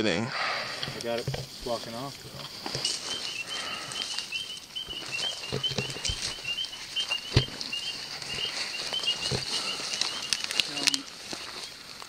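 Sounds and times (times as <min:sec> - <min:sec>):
night insects chirping: 0:00.3 - 0:12.0
footsteps through wet brush: 0:01.6 - 0:12.0.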